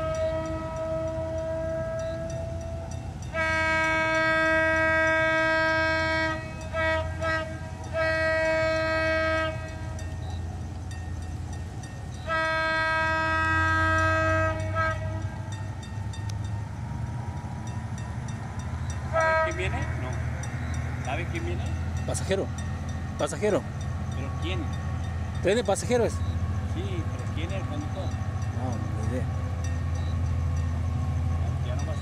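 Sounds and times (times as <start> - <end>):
locomotive horn blasts: 0.0 - 10.4, 12.2 - 16.5, 18.7 - 22.6
diesel locomotive engine rumble: 0.0 - 32.0.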